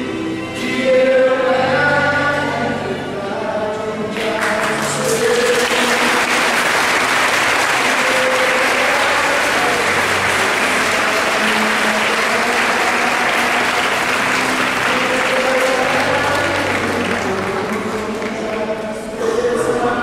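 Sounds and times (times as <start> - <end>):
faint singing: 0.0 - 20.0
congregation applauding: 4.2 - 19.1.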